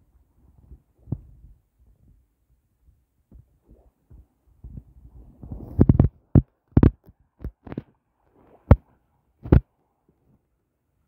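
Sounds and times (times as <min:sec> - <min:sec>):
thumps on microphone: 0:04.1 - 0:07.9, 0:08.6 - 0:09.7.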